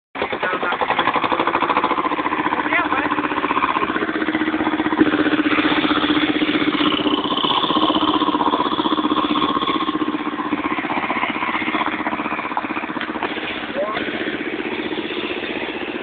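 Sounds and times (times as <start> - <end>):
vehicle engine chugging: 0.2 - 16.0.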